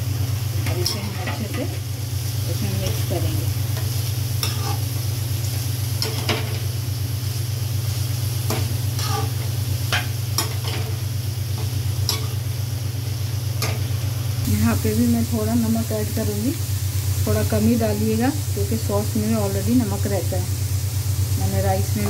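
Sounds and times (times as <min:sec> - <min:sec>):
vegetables sizzling in a pan: 0:00.0 - 0:22.0
spoon scraping a metal pan: 0:04.4 - 0:04.8, 0:08.5 - 0:10.9.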